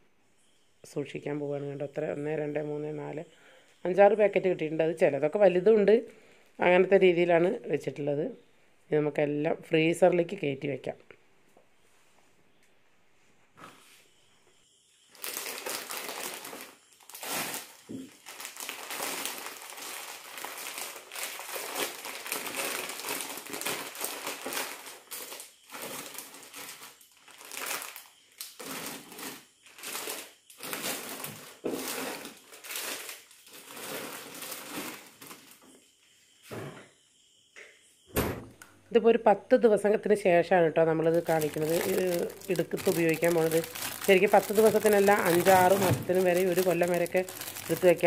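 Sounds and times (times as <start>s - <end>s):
plastic bags crinkling: 15.1s - 35.6s, 41.0s - 48.0s.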